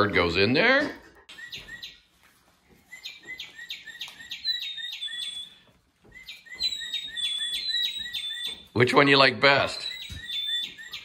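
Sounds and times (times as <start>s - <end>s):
toy bird chirping: 3.0s - 5.6s, 6.2s - 8.8s, 9.7s - 11.0s.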